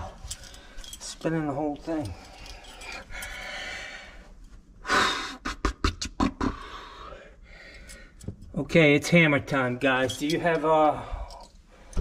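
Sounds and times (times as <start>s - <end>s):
person breathing heavily: 2.0s - 5.5s, 6.4s - 8.2s.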